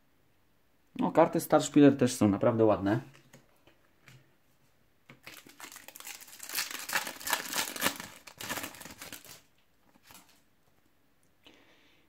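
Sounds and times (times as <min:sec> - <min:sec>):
foil wrapper crinkling and tearing: 0:05.2 - 0:10.4.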